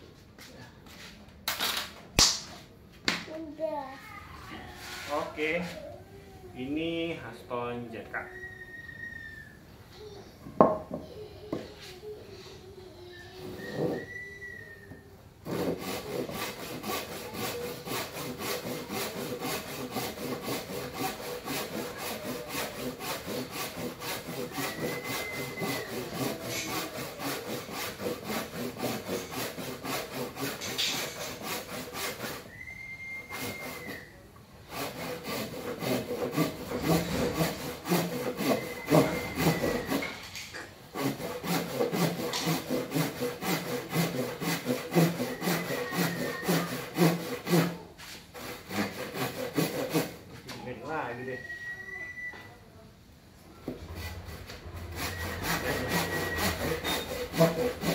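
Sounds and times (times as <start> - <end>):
hand saw cutting wood: 4.8 - 5.8, 15.4 - 51.0, 53.6 - 57.9.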